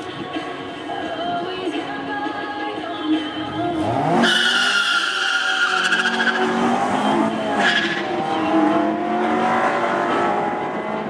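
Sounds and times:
racing car engine revving: 3.6s - 11.0s
tyres squealing: 4.2s - 8.7s.

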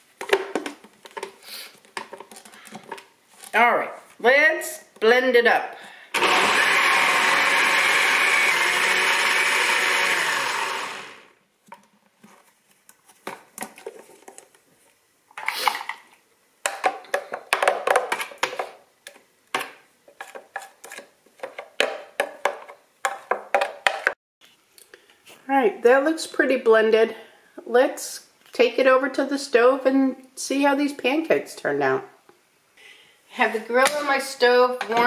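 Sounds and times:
blender grinding: 6.1s - 11.4s
spoon stirring in plastic jar: 20.1s - 21.9s.

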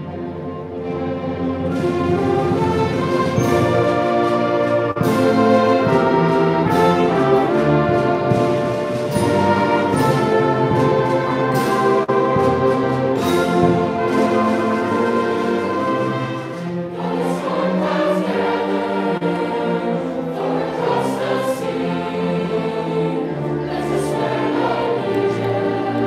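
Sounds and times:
brass instruments: 0.0s - 26.0s
orchestra and band playing: 0.0s - 26.0s.

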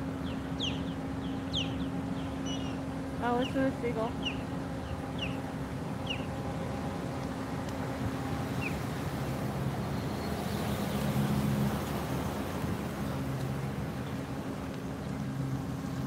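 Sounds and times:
low engine drone: 0.0s - 16.0s
seagull calls: 0.5s - 5.4s, 6.0s - 6.3s.

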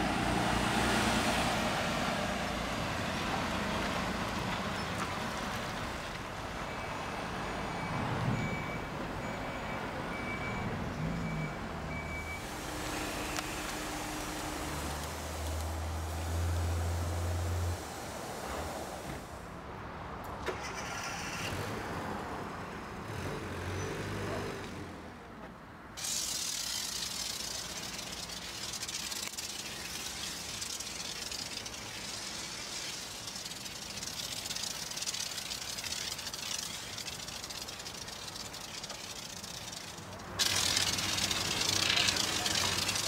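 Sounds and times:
foam lance spraying hiss: 12.4s - 19.4s, 26.0s - 43.0s.

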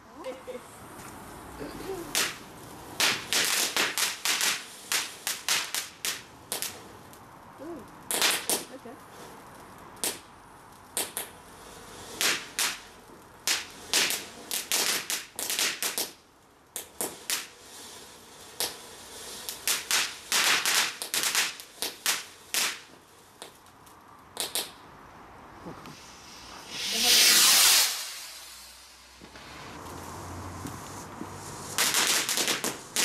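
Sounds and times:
firework fountain hiss: 0.2s - 33.0s
firework crackling pops: 0.6s - 33.0s.

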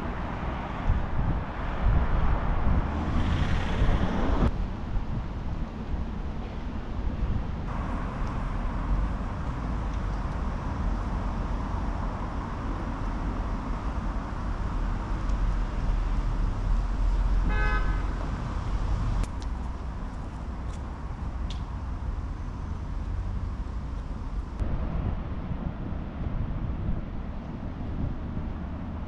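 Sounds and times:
street traffic rumble: 0.0s - 29.0s
vehicle horn toot: 17.5s - 18.2s.

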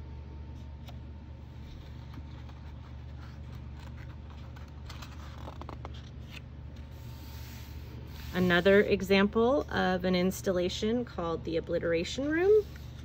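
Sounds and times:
steady low hum: 0.0s - 13.0s
book page rustling: 0.6s - 8.3s.

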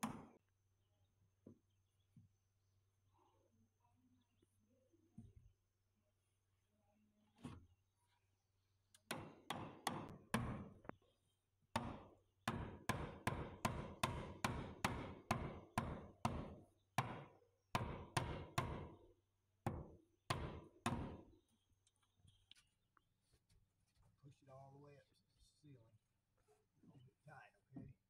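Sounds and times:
hammer driving nails into wood: 0.0s - 0.4s, 9.0s - 10.9s, 11.8s - 19.0s, 19.7s - 21.3s.

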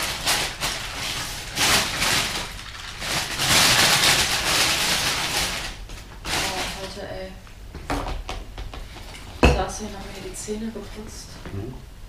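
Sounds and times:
rustling: 0.0s - 7.0s.

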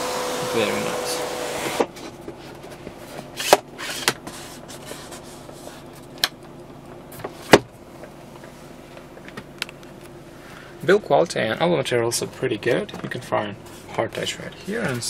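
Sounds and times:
sunroof motor whirring: 0.0s - 2.6s.

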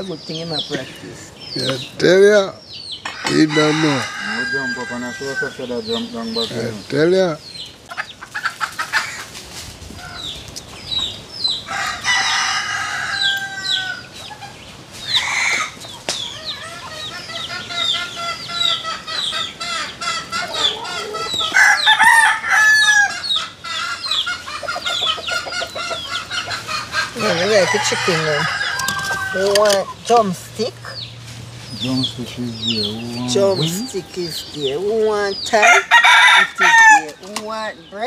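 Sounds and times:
chickens clucking: 0.0s - 38.0s
rooster crowing: 3.2s - 6.0s, 11.6s - 14.2s, 15.1s - 26.1s, 26.9s - 29.8s, 32.6s - 34.5s, 35.6s - 37.2s.

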